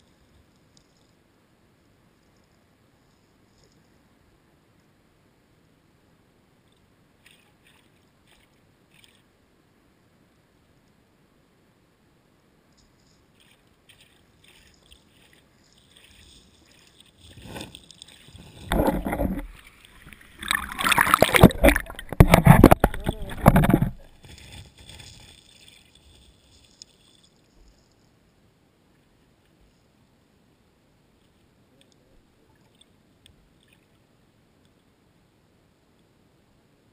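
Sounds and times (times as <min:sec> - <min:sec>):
water splashing and sloshing: 0:06.7 - 0:09.4, 0:12.8 - 0:27.9
underwater ticking and clicking: 0:12.8 - 0:27.4.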